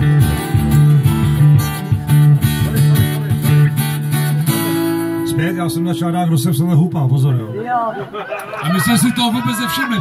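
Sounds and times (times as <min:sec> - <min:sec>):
low bass line: 0:00.0 - 0:05.3
acoustic guitars strummed: 0:00.0 - 0:07.1.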